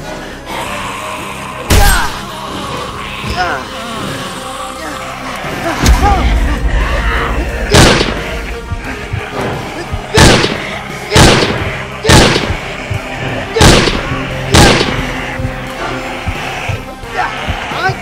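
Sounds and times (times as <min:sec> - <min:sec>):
background music: 0:00.0 - 0:18.0
loud sharp bangs: 0:07.6 - 0:08.5, 0:10.1 - 0:12.9, 0:13.6 - 0:15.2.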